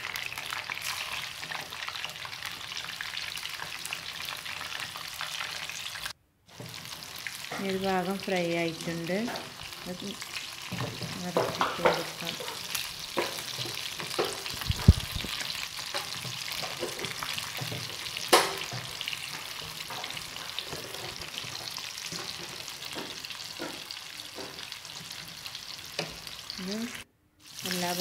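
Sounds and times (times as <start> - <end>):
chicken deep-frying in oil: 0.0 - 28.0
spoon clicking and knocking on pan: 15.9 - 18.9.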